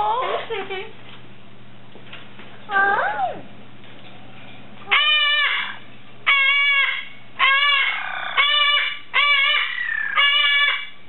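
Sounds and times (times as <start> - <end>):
parrot squawking: 4.9 - 11.0.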